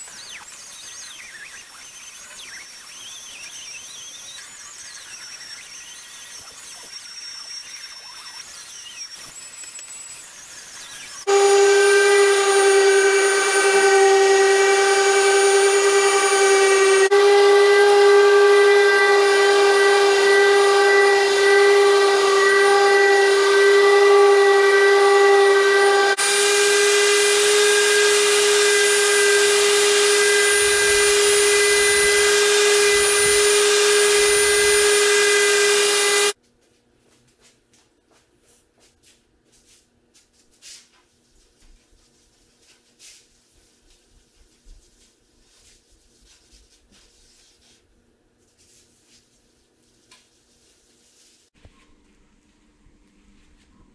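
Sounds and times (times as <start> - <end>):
orbital sander whining: 2.0 - 36.4.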